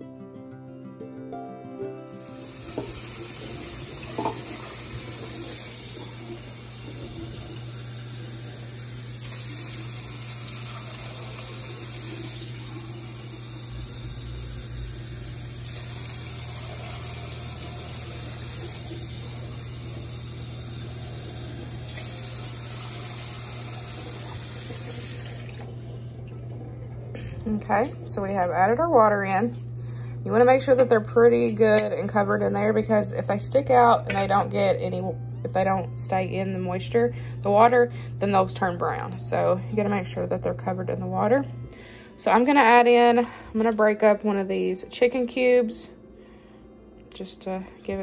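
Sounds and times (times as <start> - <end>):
water pouring and splashing: 2.3 - 28.2.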